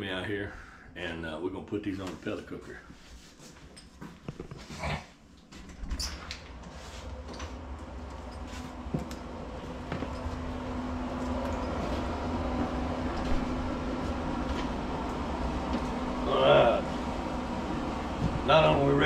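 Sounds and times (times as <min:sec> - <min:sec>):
machine hum: 0:05.7 - 0:19.0.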